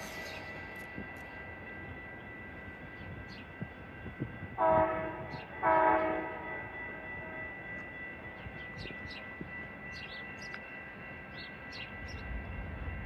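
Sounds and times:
train air horn blasts: 0:04.6 - 0:07.4.

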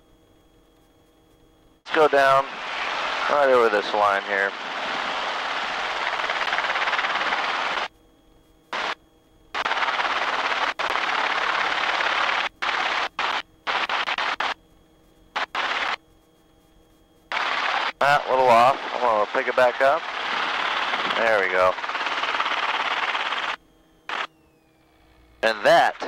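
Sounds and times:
faint hum: 0:00.0 - 0:26.0
helicopter hovering: 0:01.9 - 0:07.9, 0:09.6 - 0:14.6, 0:15.3 - 0:16.0, 0:17.2 - 0:26.0.

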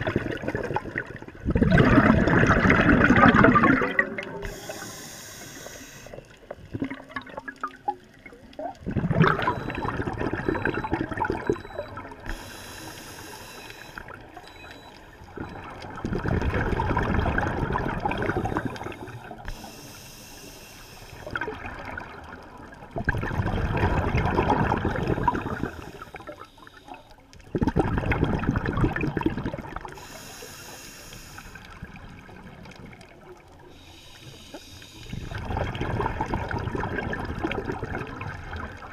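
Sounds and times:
exhaled air bubbling: 0:00.0 - 0:38.9
regulator inhalation hiss: 0:04.4 - 0:06.3, 0:12.3 - 0:14.1, 0:18.3 - 0:21.3, 0:25.2 - 0:27.0, 0:30.0 - 0:31.7, 0:33.7 - 0:35.4.

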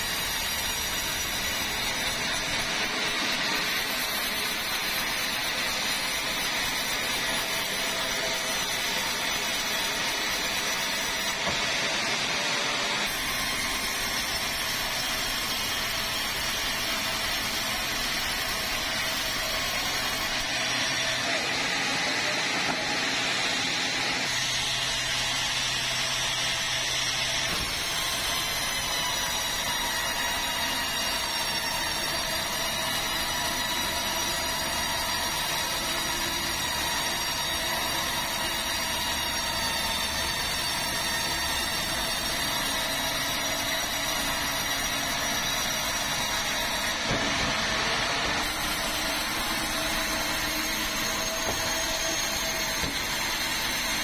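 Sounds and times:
band saw cutting log: 0:00.0 - 0:54.0
constant saw whine: 0:00.0 - 0:54.0.

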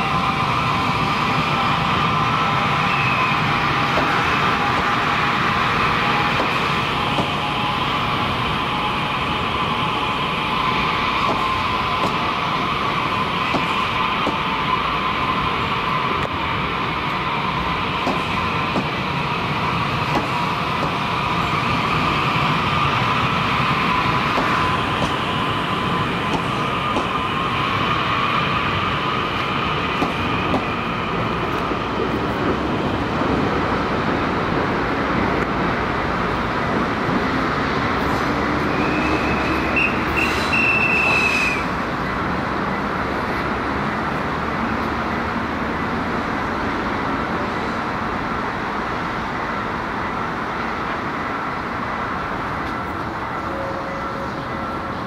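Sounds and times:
electric trains rolling past: 0:00.0 - 0:55.0
steel wheels squealing: 0:00.1 - 0:04.9, 0:38.1 - 0:41.8.

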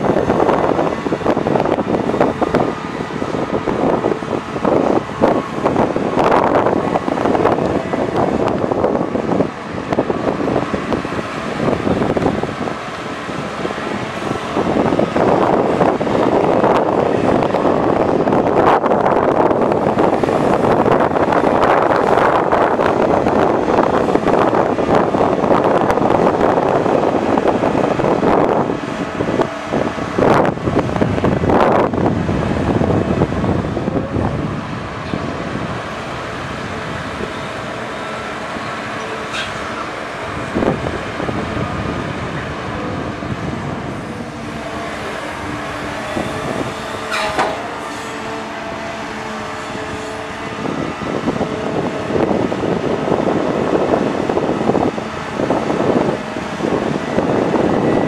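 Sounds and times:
excavator diesel engine and hydraulics: 0:00.0 - 0:58.0
excavator clanks: 0:34.8 - 0:58.0
knocks: 0:47.2 - 0:47.7.

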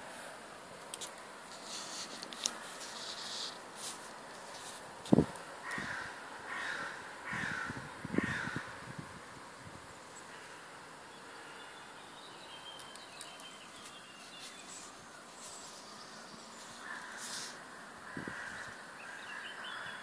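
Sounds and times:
high-pitched bird song: 0:11.5 - 0:16.7.

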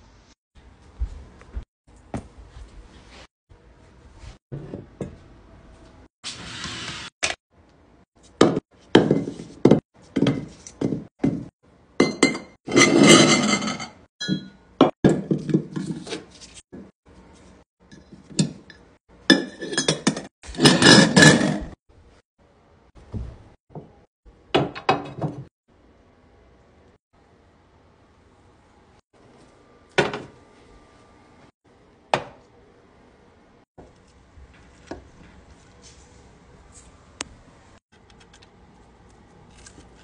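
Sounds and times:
glass jar clinking and knocking: 0:12.0 - 0:15.8, 0:17.9 - 0:21.8.

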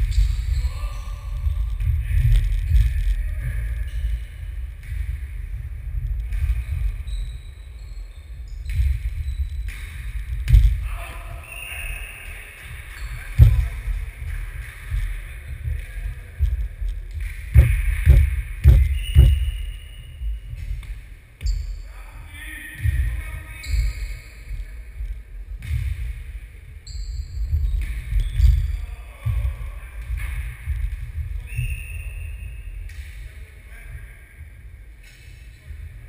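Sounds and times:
ball bouncing on wooden floor: 0:13.4 - 0:13.8, 0:14.9 - 0:19.7.

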